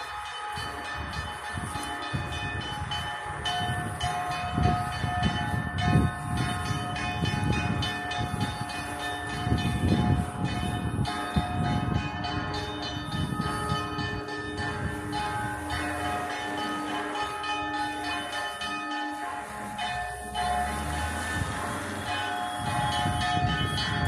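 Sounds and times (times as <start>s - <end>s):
church bells pealing: 0.0s - 24.0s.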